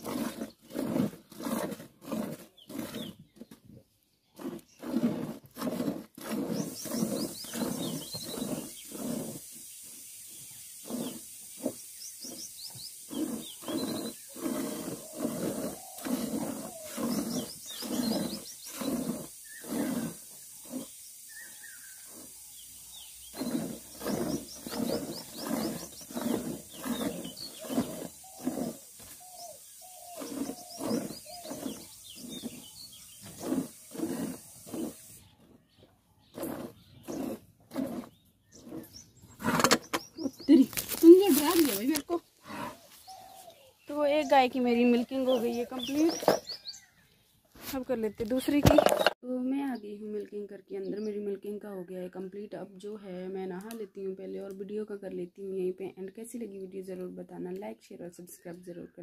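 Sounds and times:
small birds chirping: 2.2s - 5.1s, 6.3s - 52.7s.

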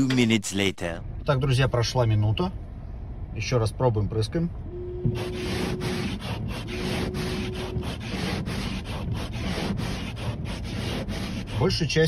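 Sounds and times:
washer fluid pump whine: 4.7s - 11.9s
wipers scraping over ice: 5.2s - 11.9s.

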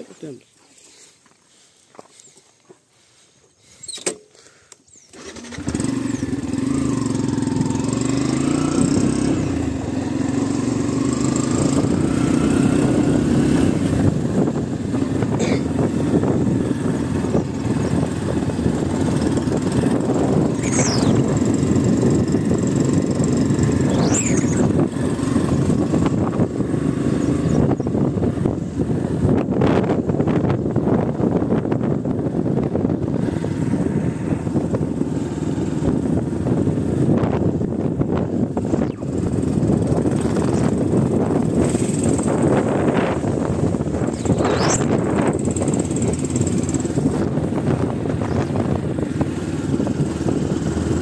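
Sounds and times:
vehicle engine starting and running: 5.0s - 51.0s.

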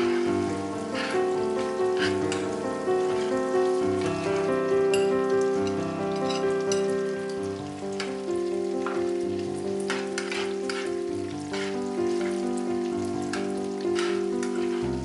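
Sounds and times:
background music sustained notes: 0.0s - 15.0s
food sizzling in oil: 0.0s - 15.0s
metal tongs clicking on pan: 4.9s - 6.9s, 9.9s - 10.9s, 13.3s - 14.6s.

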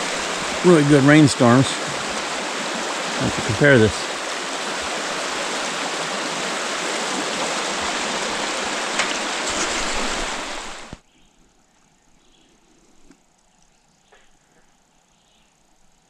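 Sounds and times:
water rushing over rocks: 0.0s - 11.0s
faint outdoor background: 8.4s - 16.0s.

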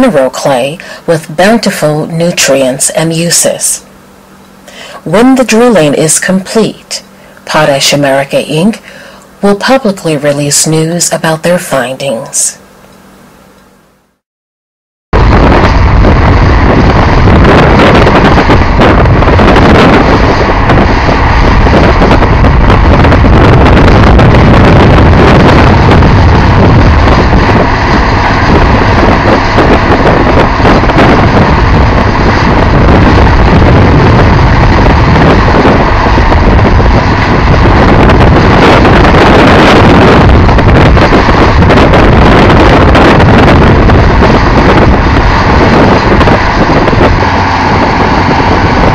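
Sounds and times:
drill rig engine and machinery: 15.2s - 48.9s.

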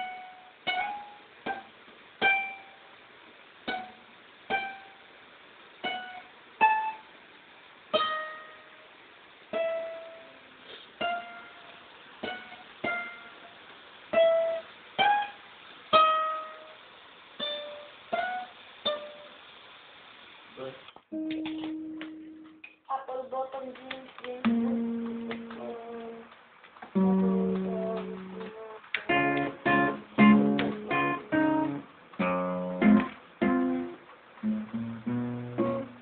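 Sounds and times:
plucked string melody: 24.4s - 26.3s, 27.0s - 36.0s.

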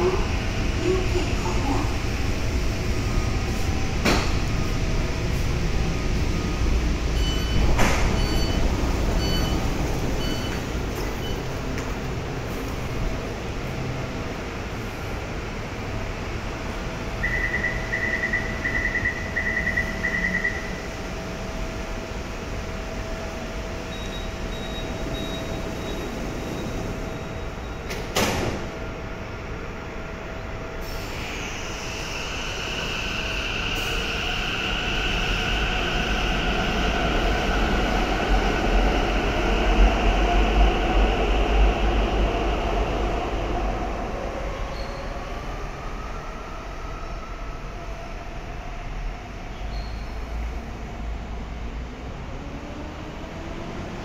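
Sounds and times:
train low rumble: 0.0s - 54.0s
door-closing warning beeps: 6.2s - 11.5s, 23.9s - 28.6s.

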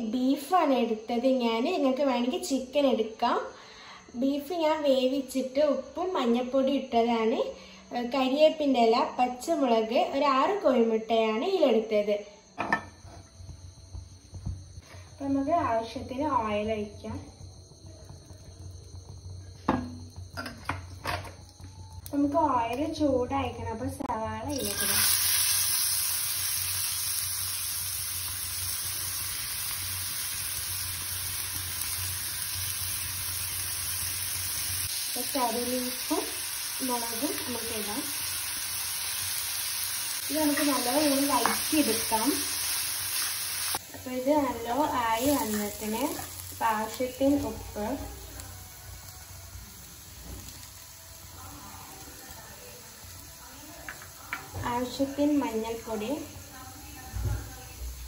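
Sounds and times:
onions sizzling in hot oil: 12.5s - 58.0s.

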